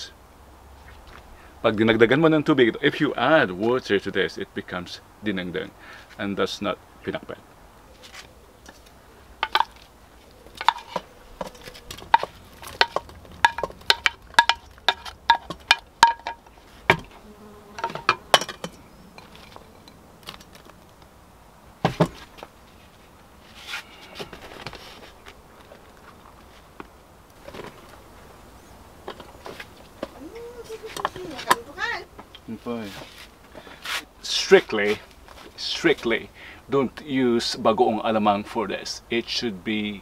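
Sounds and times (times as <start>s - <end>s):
wooden spoon knocking on pot: 10.6s - 17.1s.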